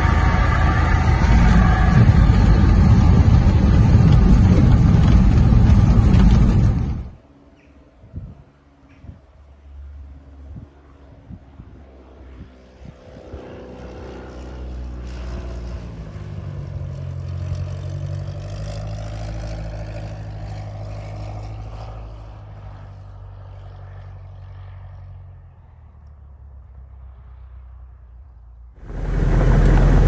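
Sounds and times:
propeller plane engine: 0.0s - 30.0s.

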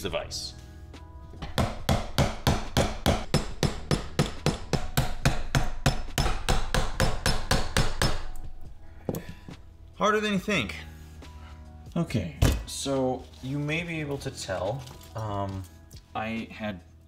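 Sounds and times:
hammer striking metal: 1.4s - 8.4s.

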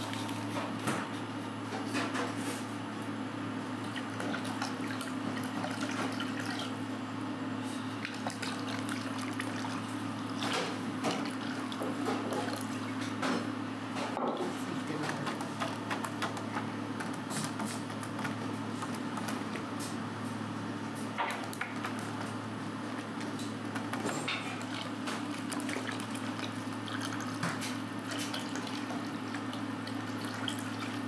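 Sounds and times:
broth simmering and bubbling: 3.6s - 13.2s, 24.3s - 31.0s.

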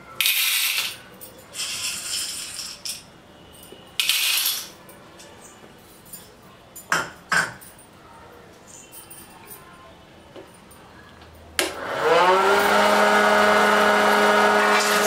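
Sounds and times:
hard grains pouring into a machine: 12.4s - 15.0s.

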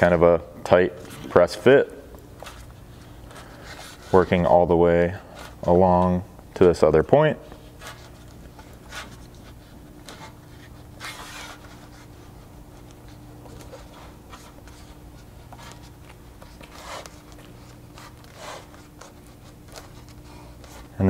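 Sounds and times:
trim rubbing and scraping: 7.5s - 21.0s.

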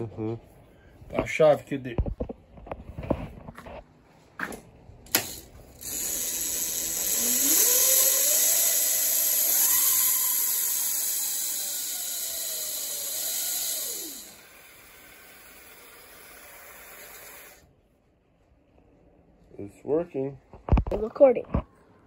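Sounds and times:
electric motor whirring and whining: 5.2s - 17.6s.

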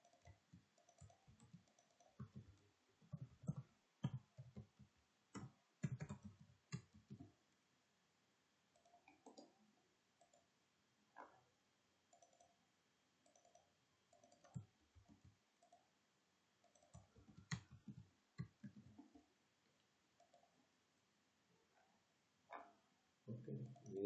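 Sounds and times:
keyboard keystrokes: 0.0s - 7.3s, 16.7s - 19.0s
mouse clicks: 0.0s - 7.3s, 8.8s - 9.6s, 10.2s - 10.5s, 12.1s - 12.6s, 13.2s - 15.8s, 16.6s - 19.2s.

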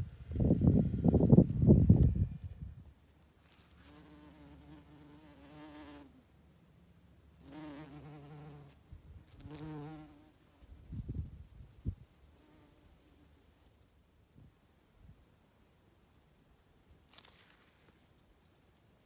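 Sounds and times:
bumblebee buzzing: 3.6s - 6.1s, 7.4s - 11.0s.

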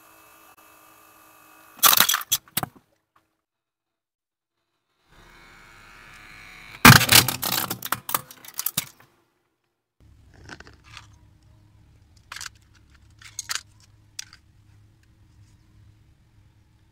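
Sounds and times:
plastic pieces clattering: 1.8s - 2.6s, 6.9s - 9.0s, 10.2s - 11.2s, 12.2s - 14.5s
plastic toy crunching under tyre: 1.8s - 2.8s, 6.8s - 9.0s, 10.1s - 11.2s, 12.0s - 14.5s.

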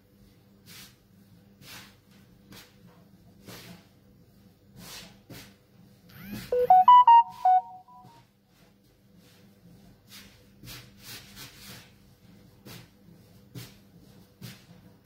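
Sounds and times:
electronic jingle of beeping notes: 6.5s - 8.1s.

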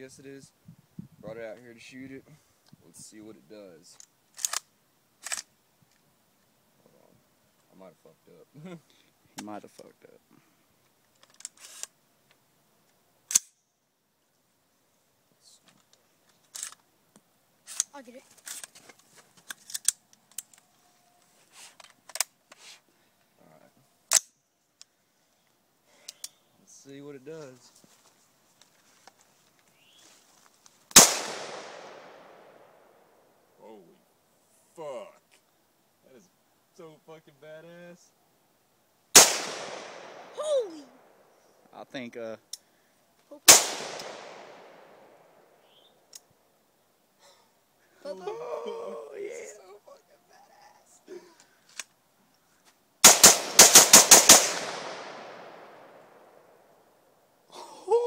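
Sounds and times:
soft clicks and rustles: 15.6s - 23.3s, 27.4s - 31.0s
rifle gunshot with echo: 31.0s - 32.6s, 39.2s - 40.3s, 43.5s - 45.1s, 53.0s - 56.0s.

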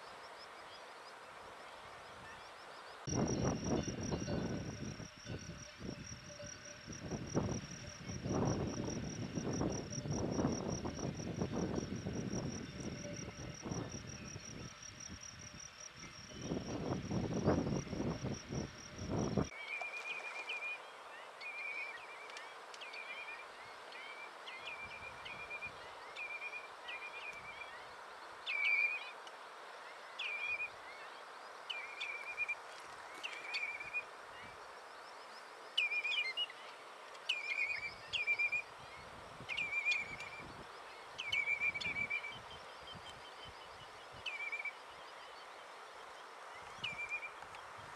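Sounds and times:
insect trill: 0.0s - 32.6s
wind on microphone: 3.1s - 19.5s.

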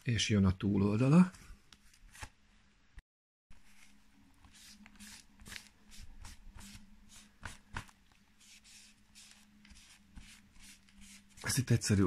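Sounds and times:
paper wipe rubbing book cover: 3.6s - 11.7s.

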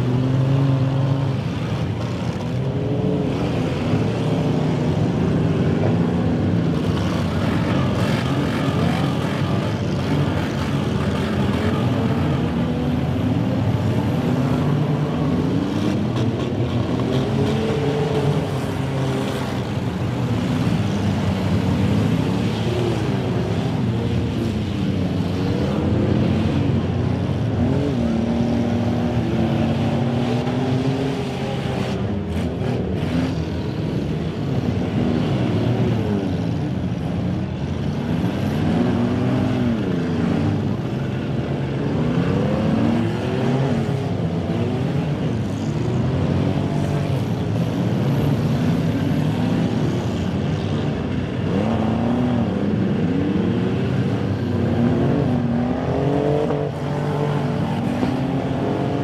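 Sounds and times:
car engines revving: 0.0s - 59.0s.

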